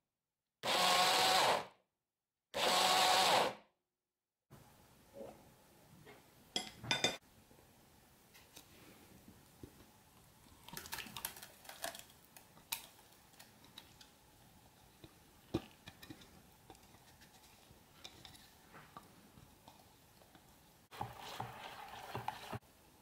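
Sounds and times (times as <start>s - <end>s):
spatula scraping plastic bowl: 20.9s - 22.6s.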